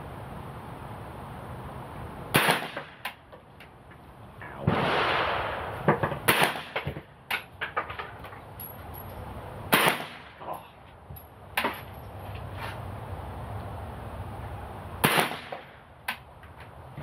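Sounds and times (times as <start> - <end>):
carbine gunshots: 2.3 - 3.0, 4.7 - 7.0, 9.7 - 10.4, 15.0 - 15.8.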